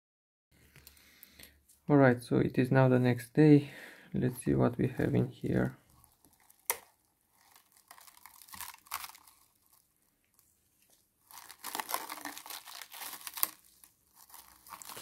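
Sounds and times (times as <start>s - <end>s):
cling film crinkling: 5.8s - 15.0s.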